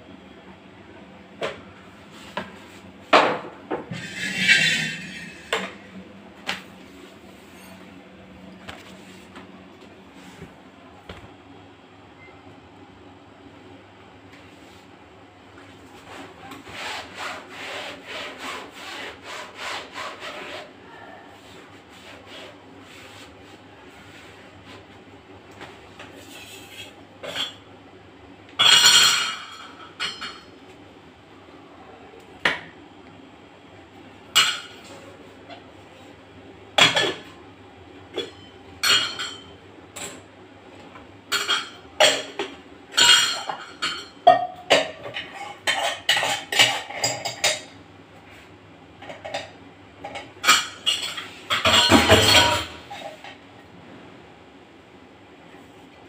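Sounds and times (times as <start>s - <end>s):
pots and utensils clattering: 3.1s - 5.9s, 26.2s - 27.7s, 28.6s - 30.5s, 34.3s - 35.0s, 36.8s - 37.3s, 38.1s - 40.3s, 41.3s - 47.8s, 49.0s - 53.4s.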